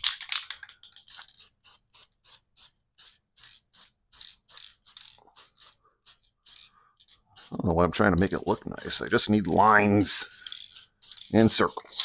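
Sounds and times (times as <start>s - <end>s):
marker scratching on steel: 1.0s - 12.0s.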